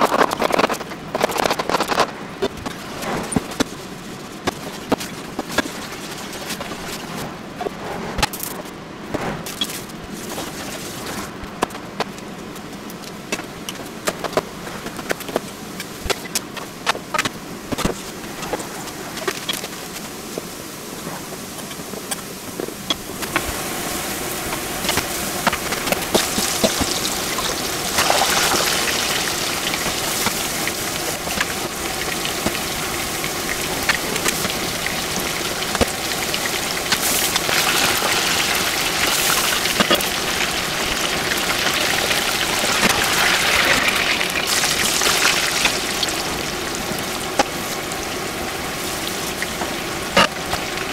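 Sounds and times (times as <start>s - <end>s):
oil sizzling and crackling: 21.3s - 50.9s.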